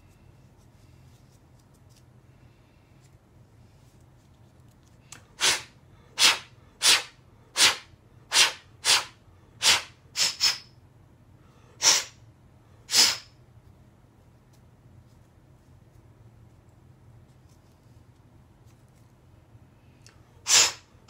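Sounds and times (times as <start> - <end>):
short puffs of blown air: 5.4 - 10.7, 11.7 - 12.2, 12.9 - 13.4, 20.4 - 21.0.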